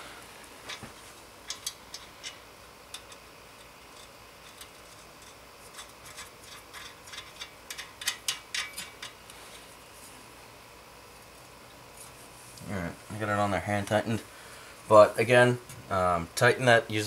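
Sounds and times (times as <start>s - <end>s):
metal nut ticking and clicking: 1.5s - 9.2s.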